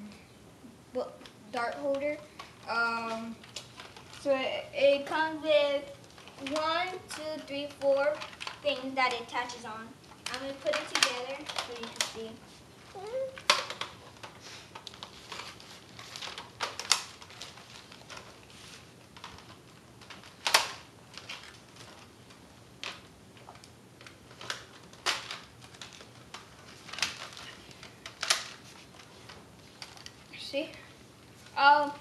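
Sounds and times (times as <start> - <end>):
plastic clicks and snaps: 8.2 - 12.3, 13.3 - 15.5, 16.1 - 18.3, 19.2 - 29.1.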